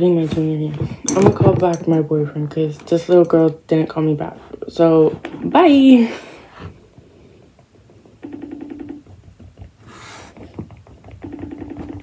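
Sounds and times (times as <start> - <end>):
phone ring tone buzzing: 8.2 - 9.1, 11.2 - 12.0.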